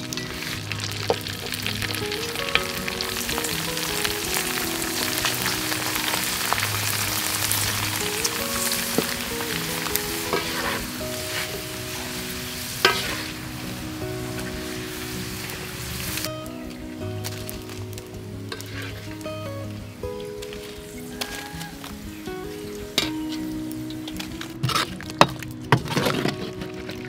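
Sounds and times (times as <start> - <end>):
chips sizzling in hot oil: 0.0 - 26.2
metal skimmer scraping a wok: 9.0 - 13.5, 18.5 - 19.2.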